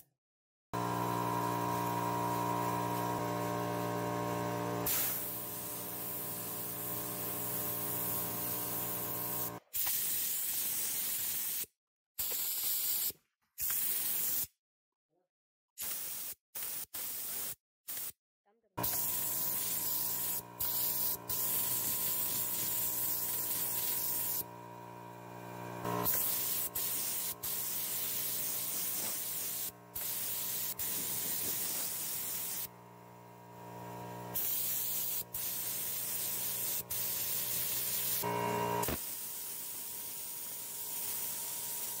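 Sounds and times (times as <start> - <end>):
spray paint hissing: 4.8 - 14.5, 15.8 - 18.2, 18.8 - 24.5, 25.8 - 32.7, 34.3 - 42.0.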